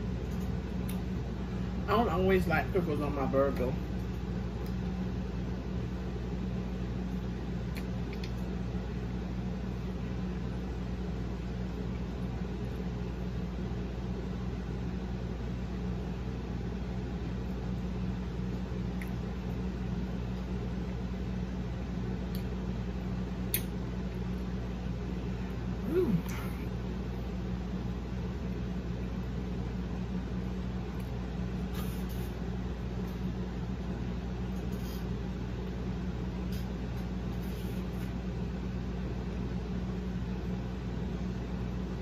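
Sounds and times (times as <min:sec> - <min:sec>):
low mechanical hum: 0:00.0 - 0:42.0
chewing clicks: 0:07.7 - 0:08.5.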